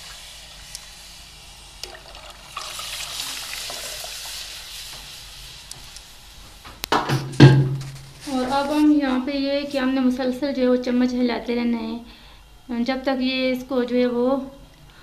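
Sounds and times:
liquid pouring into a pot: 1.8s - 4.8s.

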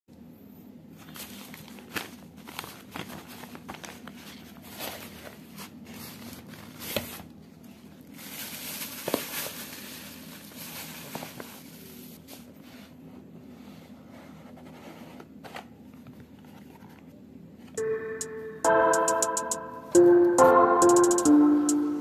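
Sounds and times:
plastic bag rustling: 1.0s - 7.3s, 8.0s - 11.9s.

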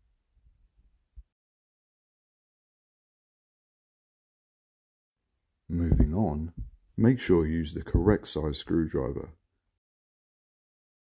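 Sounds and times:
faint low handling knocks: 5.8s - 6.8s.

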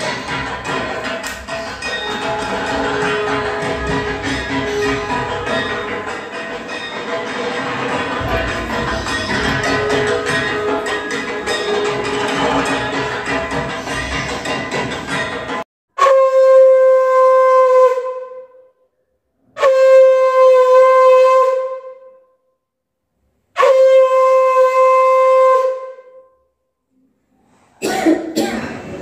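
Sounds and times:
background music: 0.0s - 15.6s
conch shell blasts: 1.2s - 13.4s, 16.0s - 18.6s, 23.6s - 26.3s.

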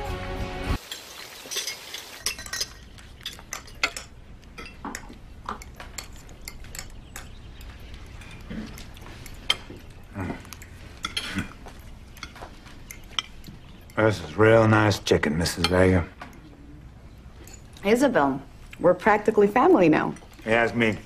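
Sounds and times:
cutlery clinking on plates: 0.8s - 14.4s, 15.5s - 16.5s.

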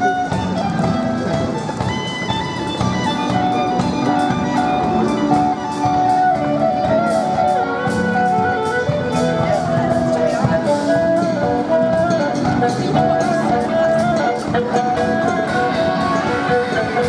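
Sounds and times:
drums keeping a steady beat: 0.0s - 17.0s
guitar: 0.0s - 17.0s
held melody line: 0.0s - 17.0s.

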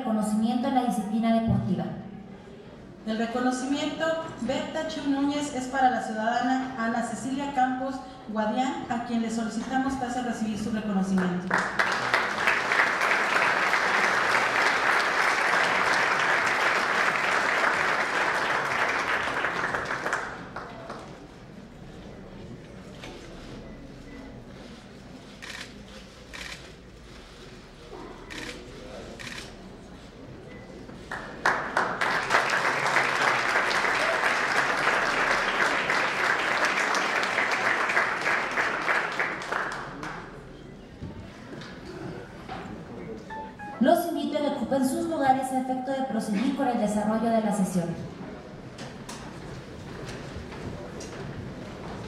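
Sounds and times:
audience applauding: 11.4s - 21.1s, 31.1s - 40.4s.

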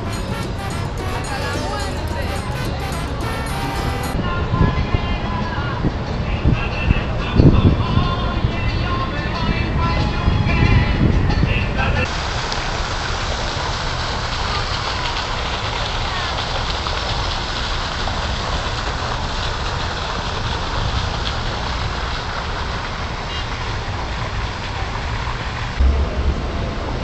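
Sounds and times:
wind buffeting microphone: 4.2s - 12.2s, 25.7s - 27.0s.

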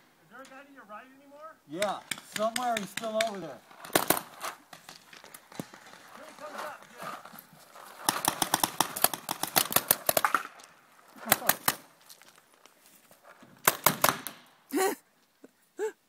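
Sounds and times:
paintball markers firing: 1.8s - 6.0s, 8.0s - 11.9s, 13.6s - 14.5s.

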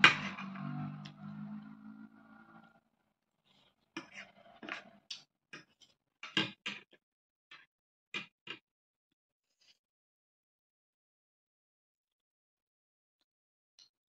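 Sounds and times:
background music: 0.0s - 2.8s.

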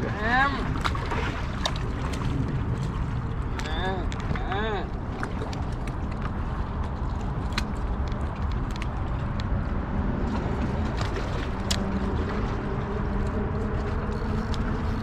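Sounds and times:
outdoor rumble by river: 0.0s - 15.0s.

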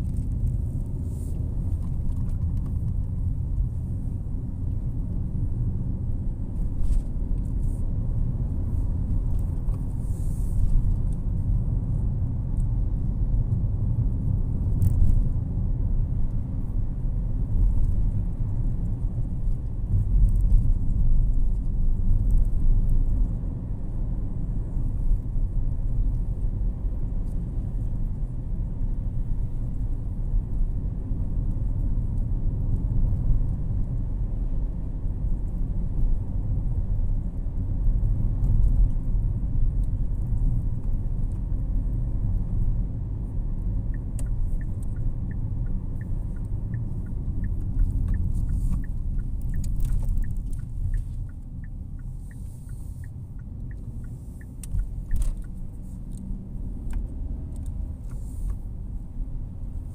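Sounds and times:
road and engine rumble: 0.0s - 59.9s
turn indicator ticking: 43.4s - 58.6s.

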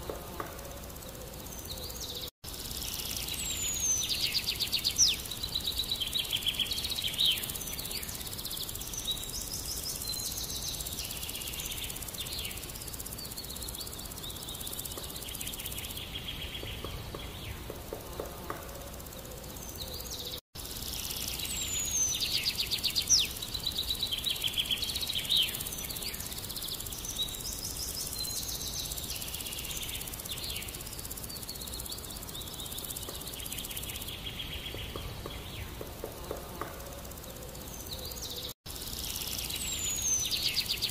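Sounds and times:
birds chirping: 0.0s - 40.9s
insects trilling: 0.0s - 40.9s
low background hiss: 0.0s - 40.9s.

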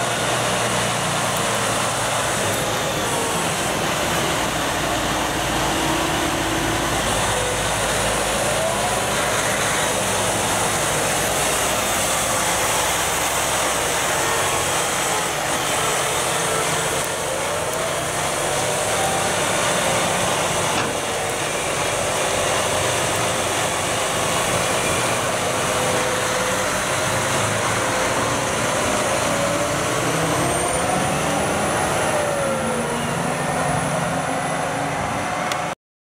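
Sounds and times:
tractor diesel engine running: 0.0s - 35.8s.

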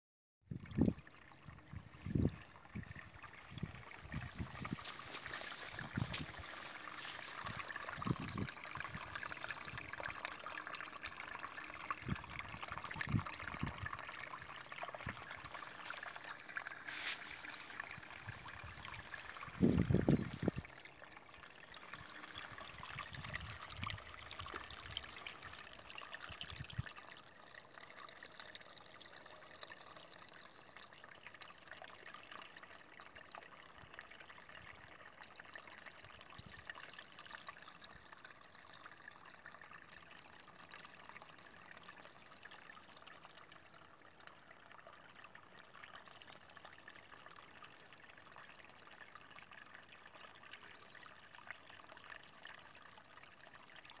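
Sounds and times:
stream trickling: 0.4s - 54.0s.

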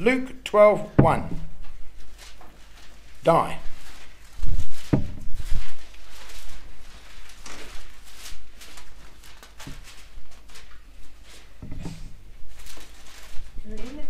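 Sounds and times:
soft knocks: 0.9s - 1.5s, 4.8s - 5.4s, 11.6s - 12.2s
rustling of thin paper pages: 1.6s - 14.0s.

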